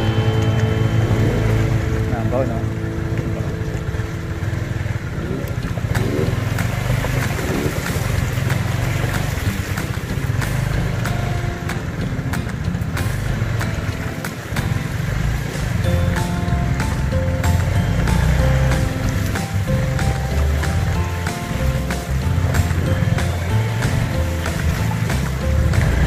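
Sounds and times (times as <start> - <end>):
motorcycle engine rumbling: 0.0 - 26.0
knocks and rattles: 5.4 - 26.0.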